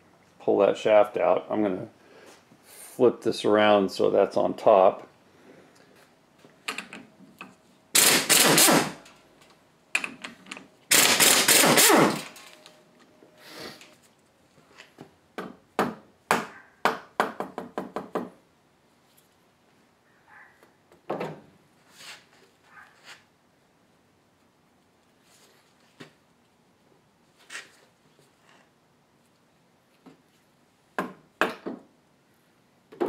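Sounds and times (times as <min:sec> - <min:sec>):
impact wrench hammering: 0:08.0 - 0:09.1, 0:10.9 - 0:12.4.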